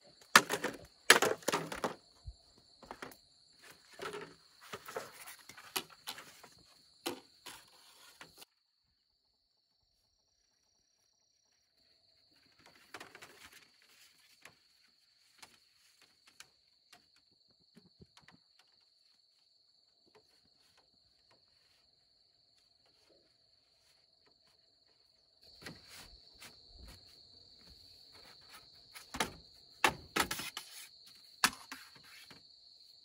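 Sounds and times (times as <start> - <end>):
bamboo poles clattering: 0.1 - 8.4, 12.5 - 18.8, 28.2 - 30.8
rustling: 12.4 - 16.7.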